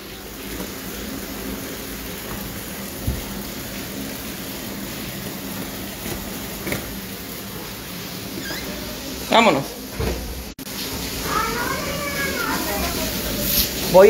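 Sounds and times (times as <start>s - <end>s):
heavy rain falling: 0.0s - 14.0s
thump: 10.0s - 10.3s.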